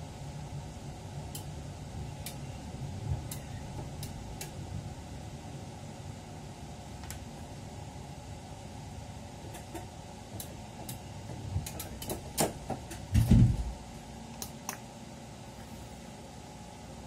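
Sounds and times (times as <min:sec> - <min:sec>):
train cab hum: 0:00.7 - 0:05.6
heavy thump: 0:13.1 - 0:13.8.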